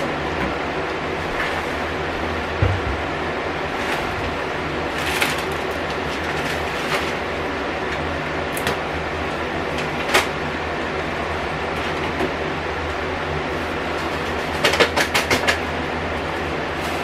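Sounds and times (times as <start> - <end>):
steady mechanical hum: 0.0 - 17.0
food containers clicking and knocking: 14.1 - 15.6.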